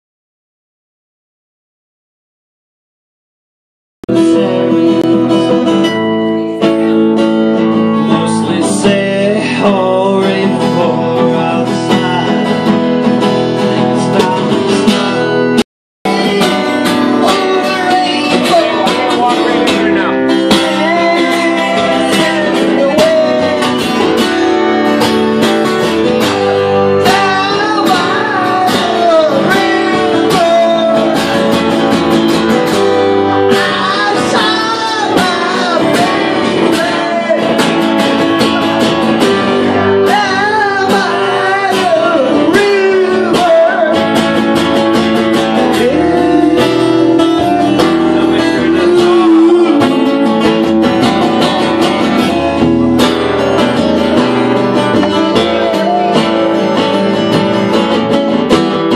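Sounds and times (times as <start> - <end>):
man singing into a microphone: 4.1 - 7.0, 7.6 - 24.9, 26.4 - 52.7, 53.4 - 57.8
acoustic guitars strummed: 4.1 - 58.9.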